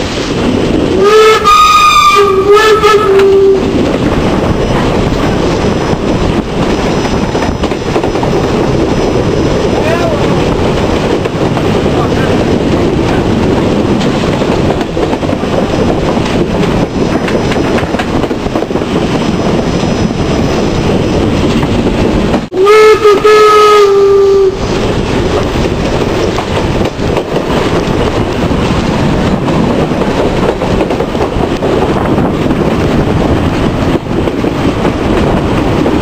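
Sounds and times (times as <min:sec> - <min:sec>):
train rail clatter: 0:00.0 - 0:36.0
wind noise: 0:00.0 - 0:36.0
steam whistle blast: 0:01.0 - 0:03.6, 0:22.6 - 0:24.6.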